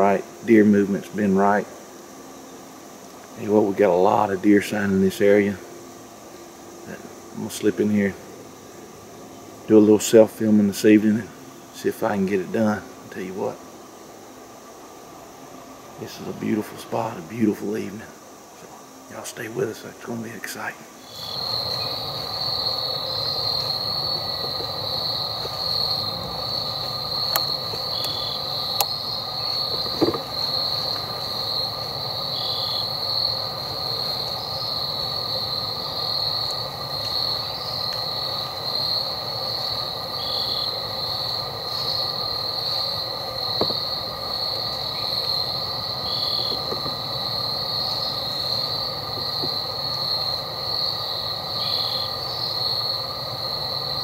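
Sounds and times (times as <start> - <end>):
high-pitched pulsing insect drone: 0.0 - 54.0
lower steady drones: 0.0 - 54.0.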